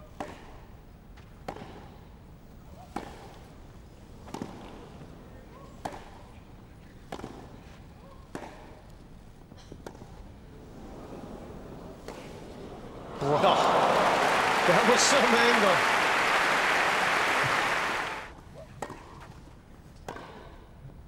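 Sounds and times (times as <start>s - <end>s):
tennis racquets striking ball: 5.8s - 6.2s.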